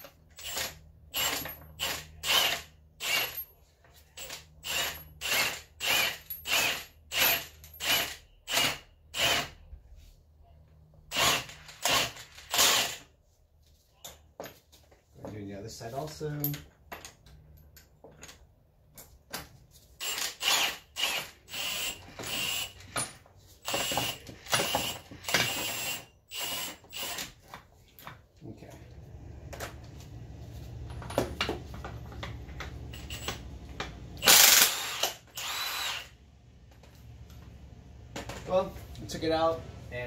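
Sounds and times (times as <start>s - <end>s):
impact wrench hammering: 20.0s - 27.3s, 31.0s - 36.1s.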